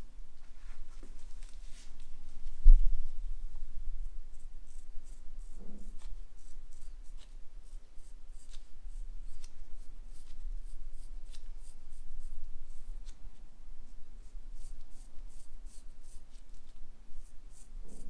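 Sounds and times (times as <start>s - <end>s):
razor scraping scalp: 4.3s - 13.2s, 14.2s - 16.5s.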